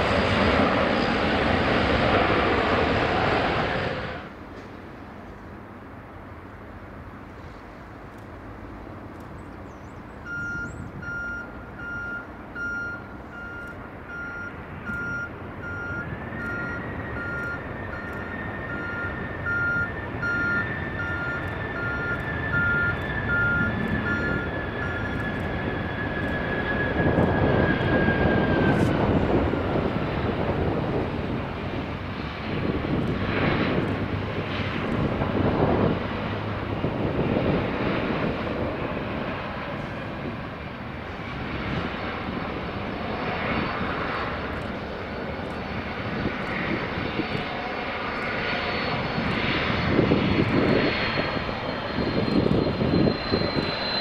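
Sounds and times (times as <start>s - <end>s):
jet airliner landing: 0.0s - 54.0s
vehicle reversing beeper: 10.2s - 28.9s, 48.2s - 54.0s.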